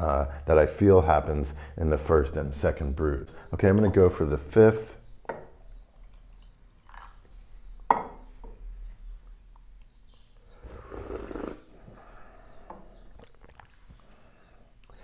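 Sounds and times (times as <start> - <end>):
small birds chirping: 0.1 - 15.0
loud slurp of tea: 10.6 - 11.7.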